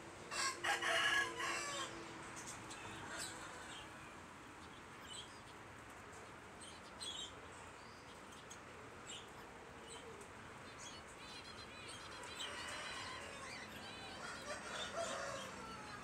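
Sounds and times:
small birds chirping: 2.3s - 16.0s.

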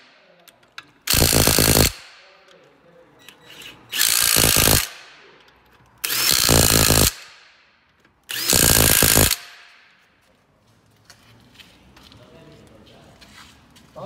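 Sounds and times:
impact wrench bursts: 1.0s - 2.2s, 3.3s - 10.0s.

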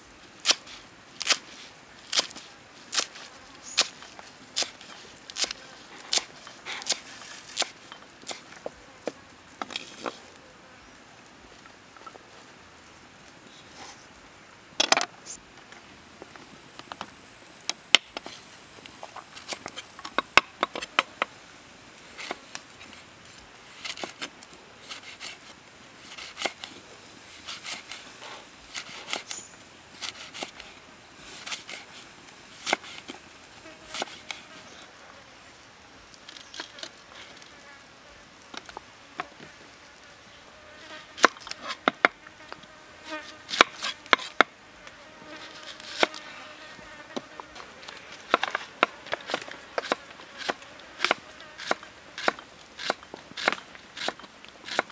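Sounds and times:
insects buzzing: 2.1s - 12.2s, 27.3s - 54.9s.

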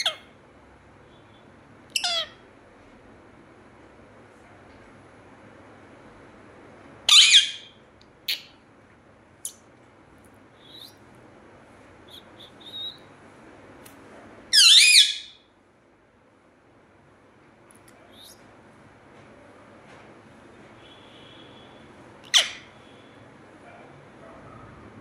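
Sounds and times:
parakeet calling loudly: 0.0s - 0.3s, 1.9s - 2.4s, 7.1s - 8.5s, 12.1s - 13.1s, 14.5s - 15.4s, 22.2s - 23.0s.

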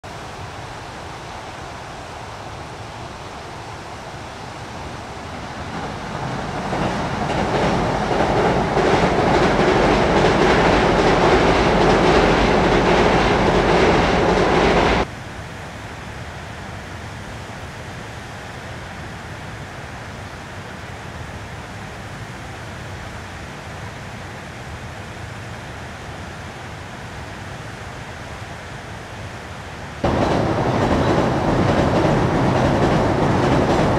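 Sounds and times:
steady background hiss: 0.0s - 33.9s
train rumbling over bridge: 2.5s - 15.1s, 30.0s - 33.9s
train wheel clacks: 5.6s - 15.1s, 30.0s - 33.9s.

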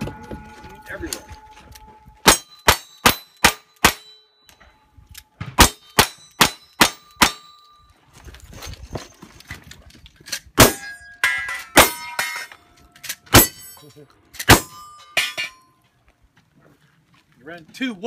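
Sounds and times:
steel plate ringing: 0.0s - 4.8s, 5.6s - 7.8s, 10.6s - 15.8s.

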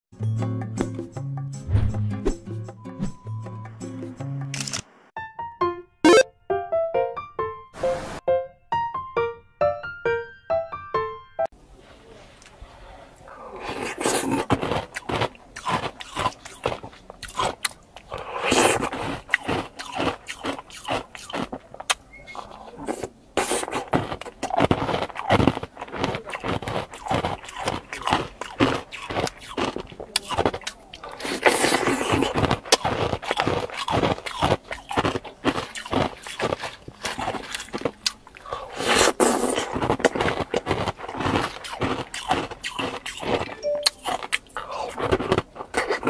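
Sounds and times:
mouth eating ice cream: 13.2s - 46.0s.

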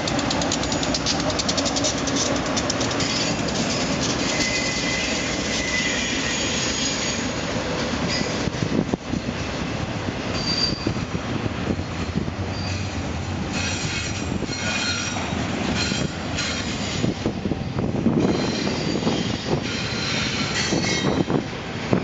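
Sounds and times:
wheels clacking over rail joints: 0.0s - 9.6s, 11.9s - 22.0s
freight train rumbling past: 0.0s - 22.0s
wheel squeals: 0.2s - 7.3s, 10.3s - 11.0s, 12.5s - 17.2s, 18.2s - 21.4s.

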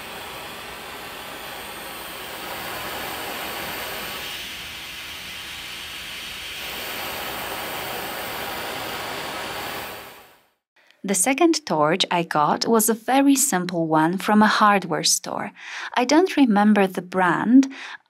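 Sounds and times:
torch flame hissing: 0.0s - 10.6s.

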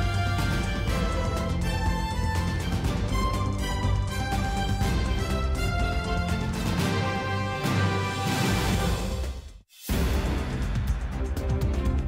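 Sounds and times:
news theme music: 0.0s - 12.0s.

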